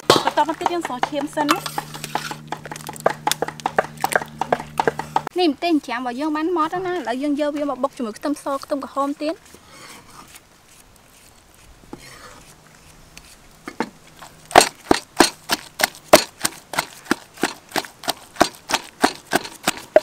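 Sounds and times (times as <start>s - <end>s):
wooden pestle pounding in mortar: 0.0s - 5.3s, 14.6s - 20.0s.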